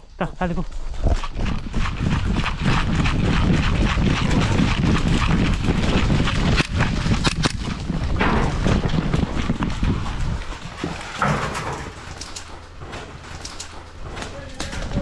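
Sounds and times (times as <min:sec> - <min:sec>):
running footsteps in dry leaves: 0:00.6 - 0:11.2.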